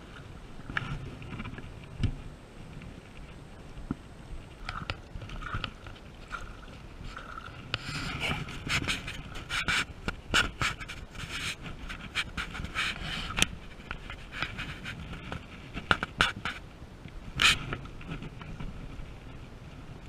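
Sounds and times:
camera rubbing against clothing: 0:04.4 - 0:16.7, 0:17.4 - 0:19.4.

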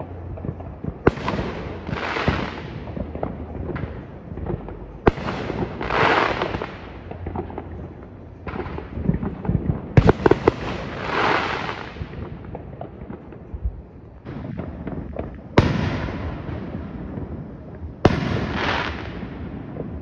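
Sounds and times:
fireworks bangs: 0:00.0 - 0:20.0
hissing crackle of sparks: 0:04.0 - 0:07.4, 0:08.8 - 0:12.2.

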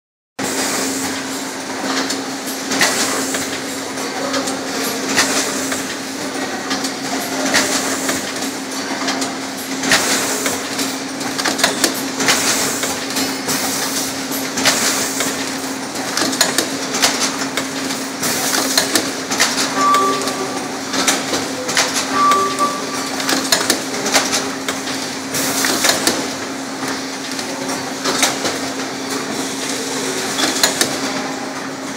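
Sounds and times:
machinery clicks and knocks: 0:06.6 - 0:31.7
machinery humming: 0:15.0 - 0:31.9
short high beeps: 0:19.7 - 0:20.8, 0:22.0 - 0:23.4.

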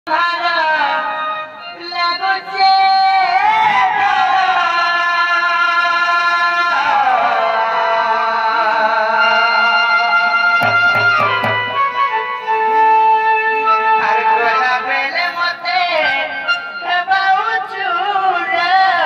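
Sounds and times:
percussion strokes: 0:10.6 - 0:12.6
melodic instrument accompaniment: 0:10.6 - 0:14.0.

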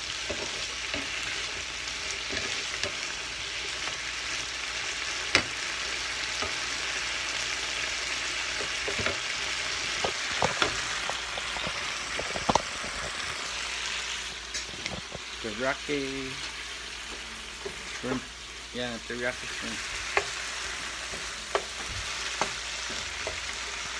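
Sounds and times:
shrimp sizzling in frying pan: 0:00.0 - 0:23.9
spatulas clicking and scraping pan: 0:00.1 - 0:04.0, 0:16.4 - 0:18.3, 0:19.7 - 0:23.9.

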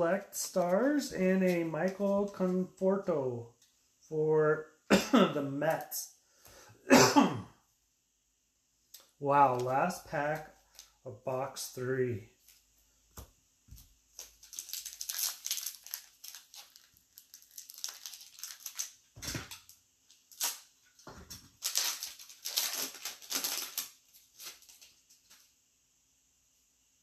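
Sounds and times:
card pack wrapper tearing and crinkling: 0:14.1 - 0:25.4.

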